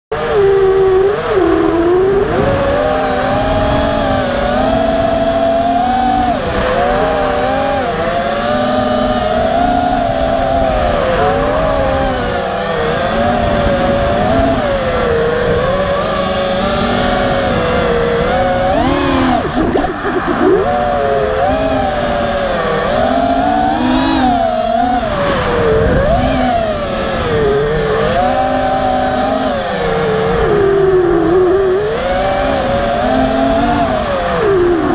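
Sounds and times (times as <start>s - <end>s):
drone motors whining: 0.1s - 34.9s
wind rushing: 10.6s - 23.2s.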